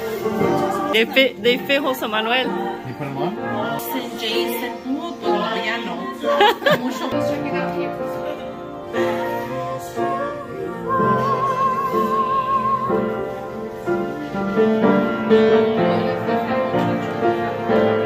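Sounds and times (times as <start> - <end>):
person singing with vibrato: 0.0 - 7.1, 8.8 - 13.8
upright piano playing: 0.0 - 18.0.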